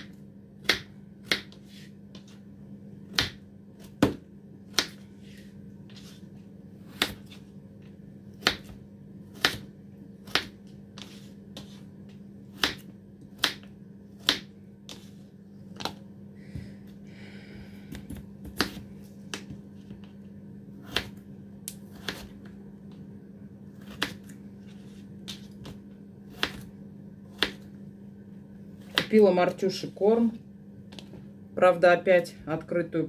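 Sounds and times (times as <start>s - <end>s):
steady low hum: 0.0s - 33.0s.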